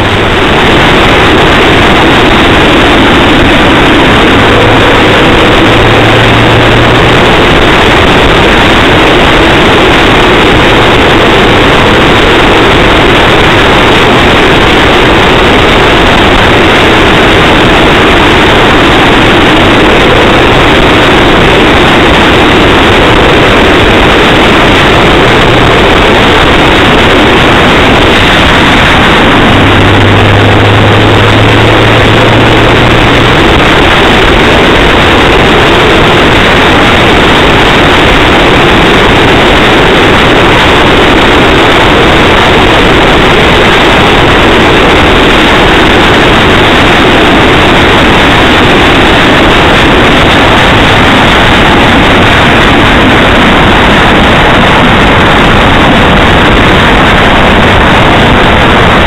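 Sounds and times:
car road and engine noise: 0:00.0 - 0:59.0
steady low hum: 0:00.0 - 0:59.0.

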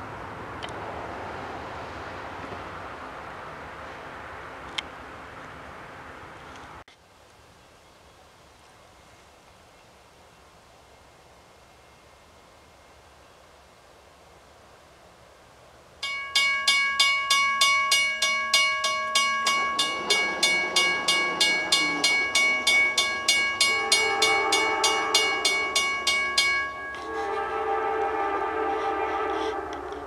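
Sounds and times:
railroad crossing bell ringing: 0:16.0 - 0:30.0
train horn: 0:19.5 - 0:30.0.

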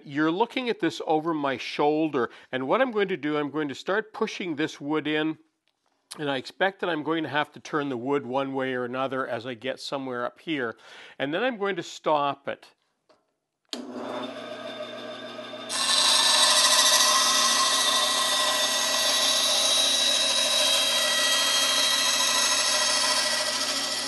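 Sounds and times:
bandsaw blade cutting plywood: 0:13.8 - 0:24.0
bandsaw motor hum: 0:13.8 - 0:24.0.

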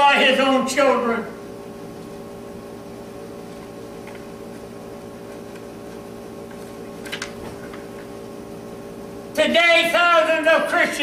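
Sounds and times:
steady room hum: 0:00.0 - 0:11.0
paper rustling: 0:03.4 - 0:08.0.

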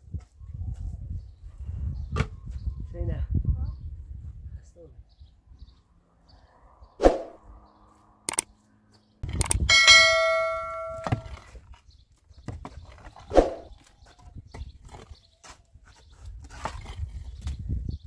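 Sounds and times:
click: 0:08.3 - 0:08.5
sharp knocks: 0:09.4 - 0:11.4
bright bell ding: 0:09.7 - 0:11.3.

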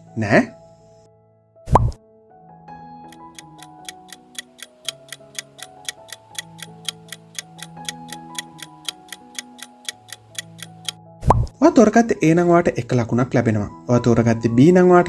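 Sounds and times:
soft melody of held notes: 0:03.0 - 0:11.0
clock ticking: 0:03.1 - 0:11.0.

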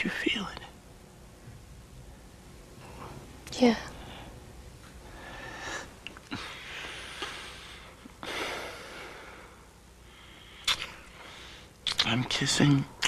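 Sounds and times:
lips clicking: 0:10.6 - 0:11.0, 0:11.8 - 0:12.1.

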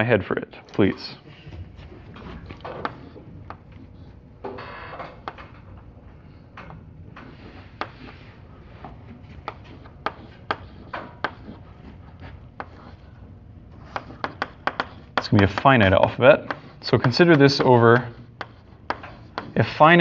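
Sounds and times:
chalk tapping on blackboard: 0:02.7 - 0:04.0, 0:07.2 - 0:20.0
chalk scratching on blackboard: 0:02.8 - 0:04.2, 0:07.2 - 0:20.0.

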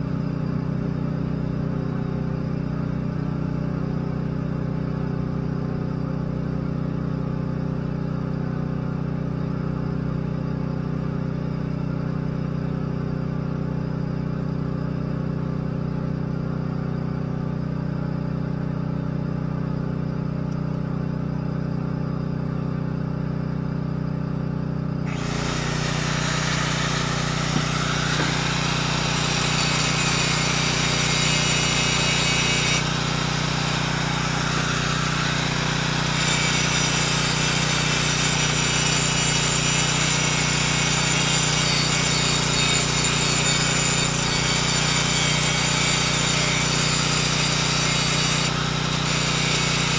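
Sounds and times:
engine running: 0:13.5 - 0:43.1, 0:44.0 - 0:49.9
welding hiss: 0:25.2 - 0:38.5.

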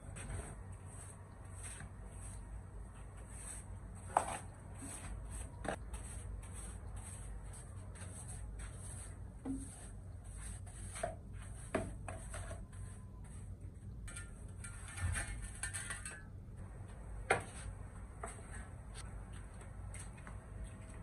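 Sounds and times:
broom scraping concrete floor: 0:00.0 - 0:16.2.

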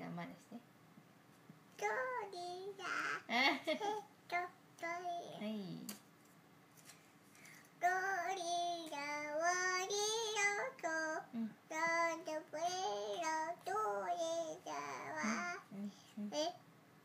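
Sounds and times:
young child singing: 0:01.8 - 0:05.4, 0:07.8 - 0:16.6.

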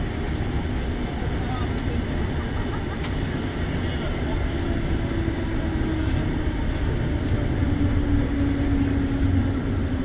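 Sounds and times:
tram wheels rumbling on rails: 0:00.0 - 0:10.0.

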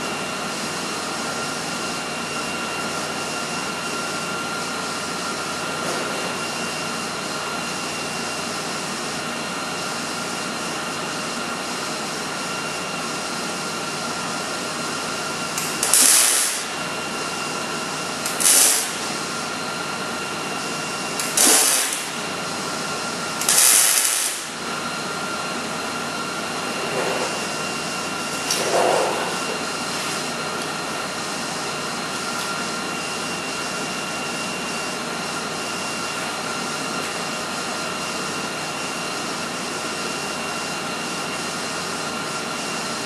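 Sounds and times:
background hum with high whine: 0:00.0 - 0:37.8
welding arc bursts: 0:15.6 - 0:16.8, 0:18.2 - 0:19.1, 0:21.2 - 0:22.2, 0:23.4 - 0:24.6.

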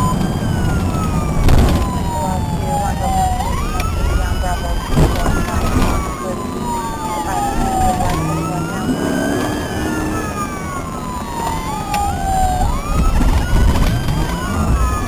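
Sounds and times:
engine and road rumble: 0:00.0 - 0:15.0
police siren wailing: 0:00.0 - 0:15.0
quicker gliding siren tone: 0:00.0 - 0:15.0.

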